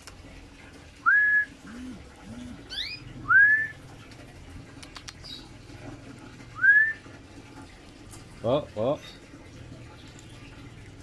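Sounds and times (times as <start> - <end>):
person whistling: 1.0 - 1.5, 3.3 - 3.7, 6.6 - 7.0
low cooing calls: 1.0 - 3.9
bird chirp: 2.7 - 3.8.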